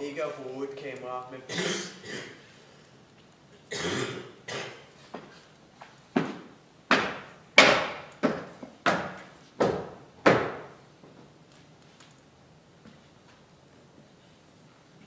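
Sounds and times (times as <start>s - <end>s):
sharp echoing knocks: 6.9s - 10.8s.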